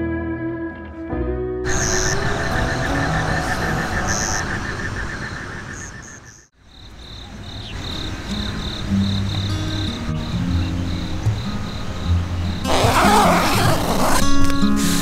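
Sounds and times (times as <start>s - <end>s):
low music tones: 0.0s - 5.2s
crickets chirping: 1.7s - 14.1s
pulsed insect call: 1.7s - 14.1s.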